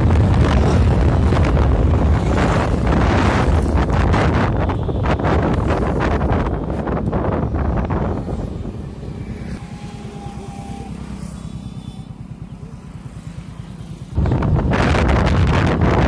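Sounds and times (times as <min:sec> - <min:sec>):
wind buffeting microphone: 0:00.0 - 0:09.6, 0:14.2 - 0:16.0.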